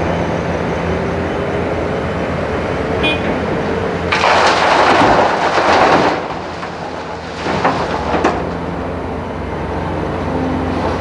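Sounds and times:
diesel engines droning: 0.0s - 11.0s.

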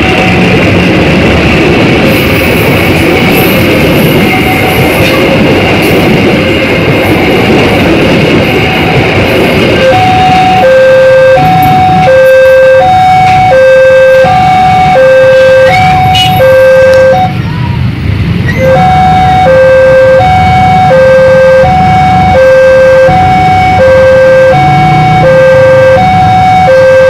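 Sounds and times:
two-tone hi-lo siren: 6.7s - 17.4s, 18.5s - 27.0s.

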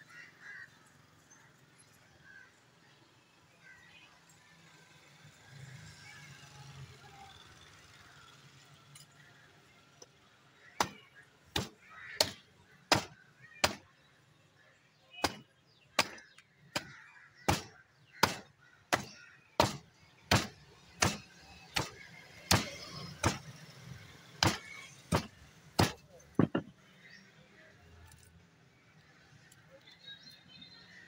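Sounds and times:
cleaver chopping on wooden block: 10.8s - 13.9s, 15.2s - 15.4s, 16.0s - 23.5s, 24.4s - 26.7s.

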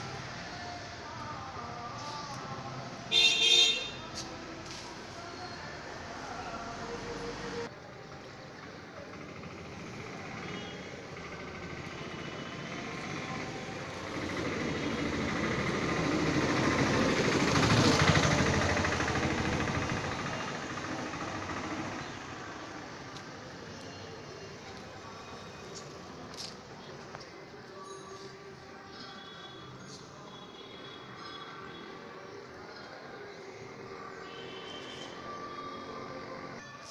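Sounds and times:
motor vehicle passing: 11.1s - 23.2s.

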